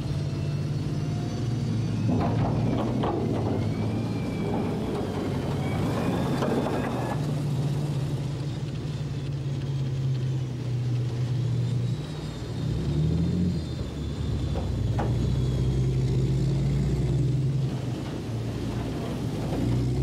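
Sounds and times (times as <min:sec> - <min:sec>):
tracked vehicle engine drone: 0:00.0 - 0:20.0
metallic track clatter: 0:01.9 - 0:12.6.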